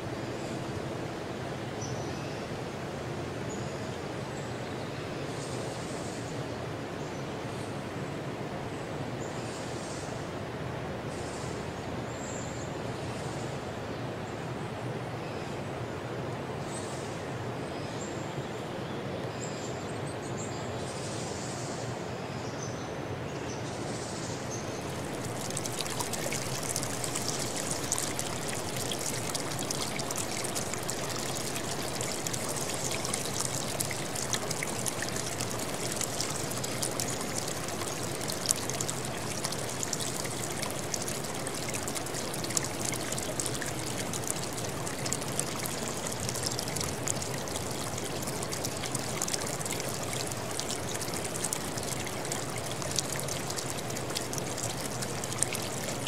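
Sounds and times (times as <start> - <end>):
stream running over rocks: 0.0 - 9.3, 24.4 - 56.0.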